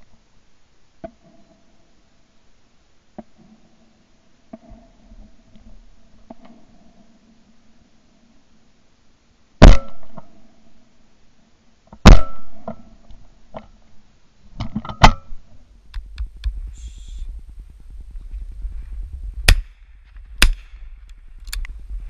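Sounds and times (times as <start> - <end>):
shotgun shots echoing: 9.6 - 10.2, 12.1 - 12.5, 19.5 - 19.8, 20.4 - 20.9
low rumble: 15.6 - 22.0.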